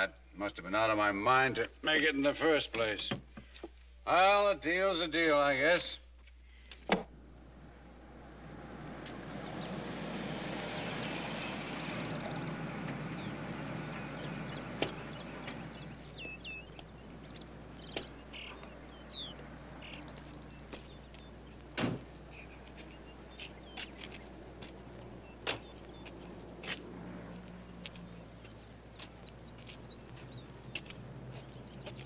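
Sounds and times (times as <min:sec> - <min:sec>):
low rumbling noise: 0:07.1 - 0:31.8
birds chirping and trilling: 0:07.4 - 0:32.0
sharp thump: 0:21.8 - 0:22.1.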